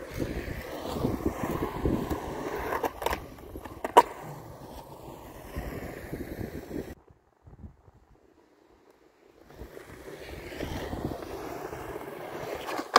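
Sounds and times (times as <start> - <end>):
skateboard clacks: 0.0 - 5.7, 8.8 - 12.9
skateboard wheels rolling on concrete: 0.0 - 12.9.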